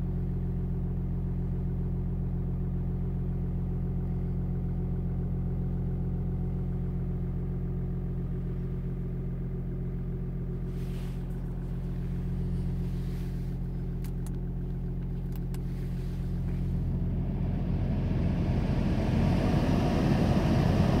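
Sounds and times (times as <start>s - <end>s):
diesel engine idling: 1.8s - 21.0s
heater blower air rush: 15.4s - 21.0s.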